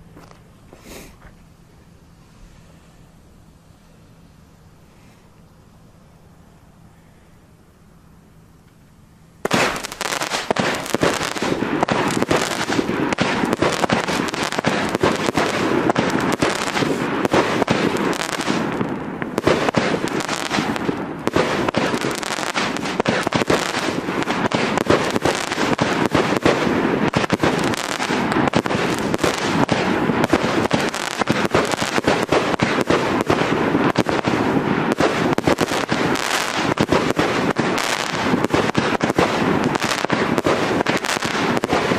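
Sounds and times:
firework launches and bursts: 9.4 - 41.9.

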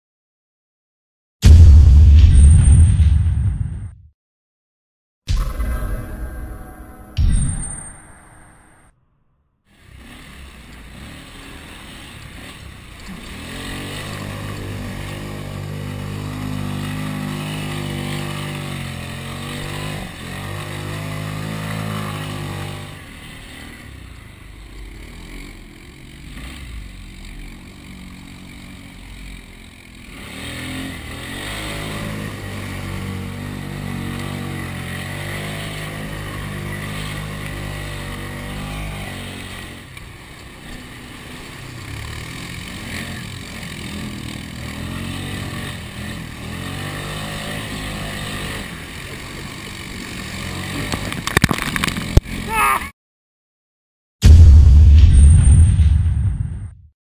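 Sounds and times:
atv engine revving: 9.7 - 52.7.

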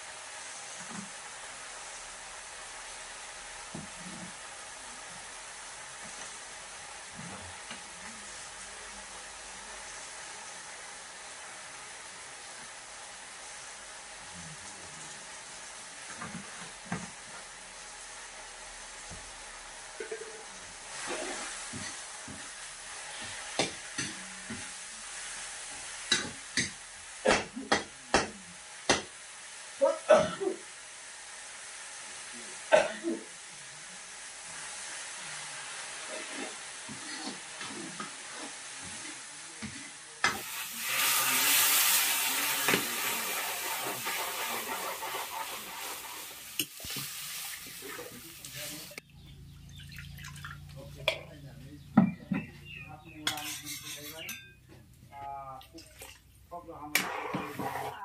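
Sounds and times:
loud hissing sizzle: 0.0 - 49.6, 52.6 - 58.0
faint frying sizzle: 0.0 - 49.8, 50.6 - 58.0
metal ladle scraping a wok: 40.3 - 47.8, 53.3 - 54.5, 57.0 - 58.0
water pouring from a jug: 49.7 - 50.8.

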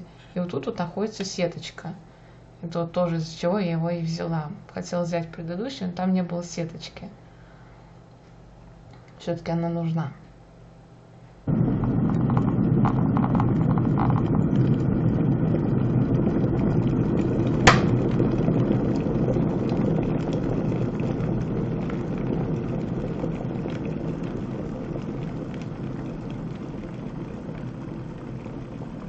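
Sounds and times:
kettle water boiling: 11.5 - 29.0
kettle switch click: 17.7 - 18.0.

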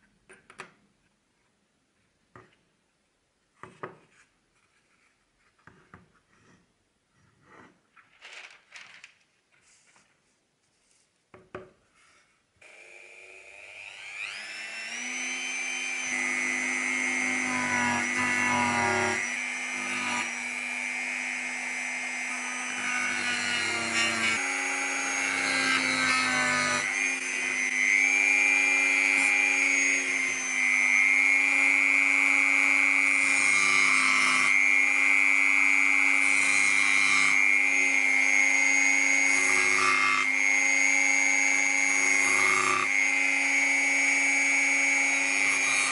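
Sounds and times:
rotary tool whining on wood: 12.6 - 45.9.

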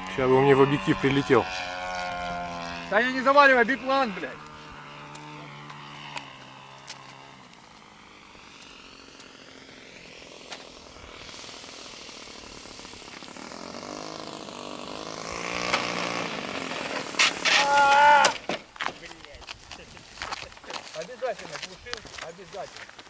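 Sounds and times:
model plane engine: 0.0 - 23.0.

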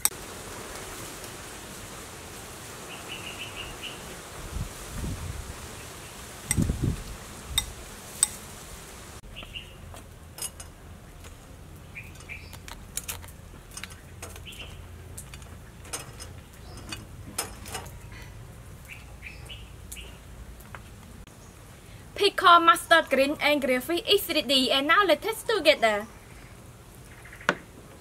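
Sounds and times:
bird chirps: 9.3 - 9.9, 11.8 - 12.6, 14.0 - 14.9, 18.8 - 20.2
spatula scraping grill rack: 12.0 - 18.3.

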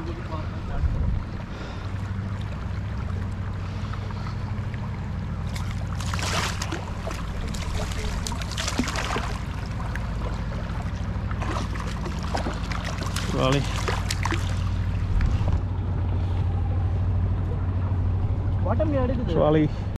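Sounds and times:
outboard motor running: 0.0 - 19.9
water splashing against raft: 1.8 - 15.6.

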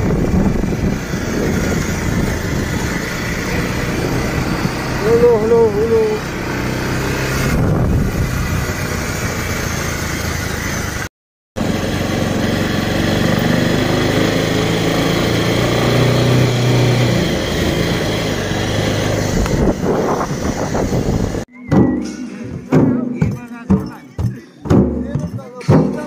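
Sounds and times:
wind rushing over microphone: 0.0 - 9.3, 18.4 - 21.5
motorcycle engine running: 0.0 - 21.5.

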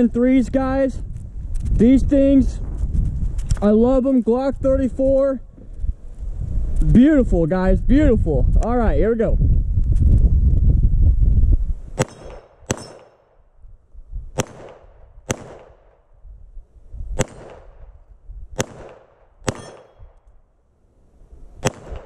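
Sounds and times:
low rumble: 0.0 - 12.3
metallic ring of steel targets: 12.0 - 13.3, 19.5 - 20.1
pistol shots: 12.0 - 13.4, 14.4 - 16.1, 17.2 - 18.0, 18.6 - 20.3, 21.6 - 22.0.

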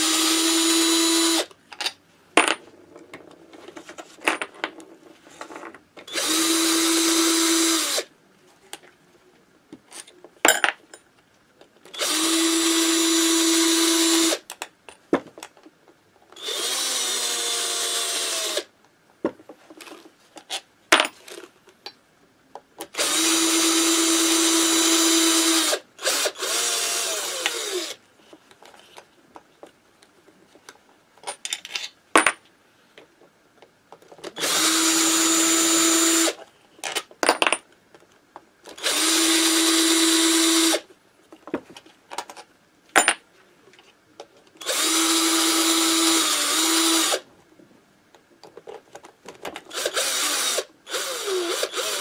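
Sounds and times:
cordless drill running: 0.0 - 1.5, 6.1 - 8.0, 12.0 - 14.4, 16.4 - 18.7, 23.0 - 28.0, 34.4 - 36.4, 38.8 - 40.8, 44.6 - 47.2, 49.7 - 52.0.

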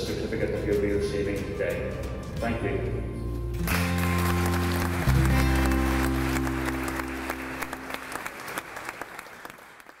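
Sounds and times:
music holding low chord: 2.0 - 8.1
audience applauding: 3.7 - 10.0.

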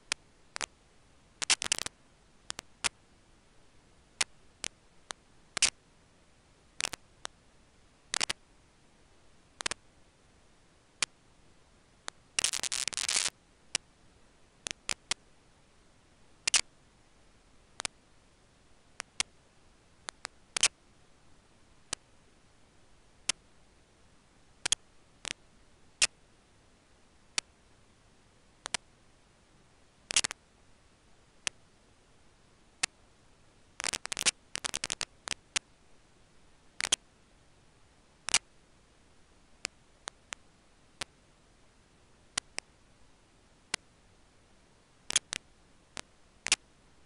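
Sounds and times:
faint steady hiss: 0.0 - 47.0
sharp clicks and crackles: 1.4 - 3.0, 4.2 - 5.8, 8.1 - 8.4, 9.6 - 9.8, 12.0 - 13.8, 14.6 - 15.2, 16.4 - 16.7, 17.8 - 18.0, 19.0 - 19.3, 20.0 - 20.8, 28.6 - 28.8, 30.1 - 30.4, 33.8 - 35.7, 36.8 - 37.0, 45.1 - 46.6.

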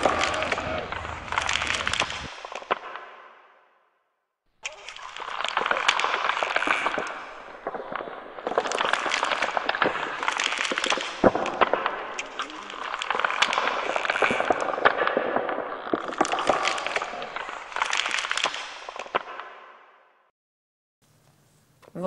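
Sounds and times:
bare feet crunching powder: 0.0 - 2.6, 4.7 - 19.1.

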